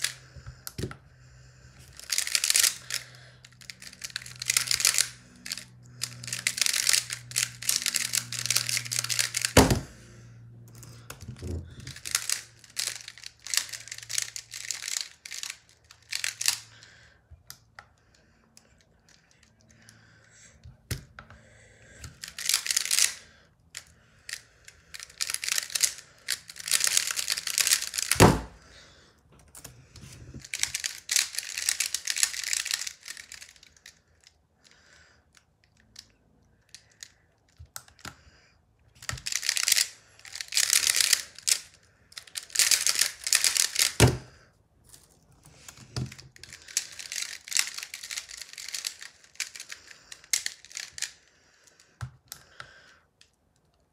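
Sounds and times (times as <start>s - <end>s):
plastic puzzle clacking: 1.8s - 10.0s, 10.9s - 16.6s, 22.0s - 23.2s, 23.8s - 28.6s, 29.5s - 34.0s, 39.0s - 44.3s, 44.9s - 51.2s.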